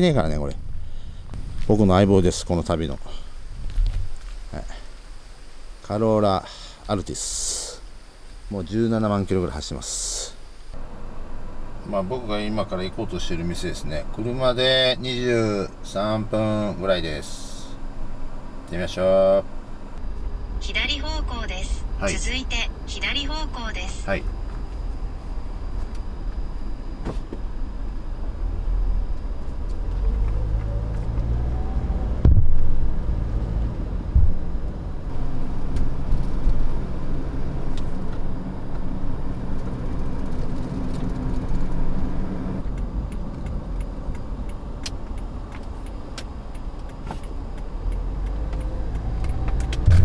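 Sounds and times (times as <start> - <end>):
car engine and road noise: 0.0 - 6.1, 7.8 - 50.0
loud thump: 32.2 - 32.7, 34.1 - 34.4.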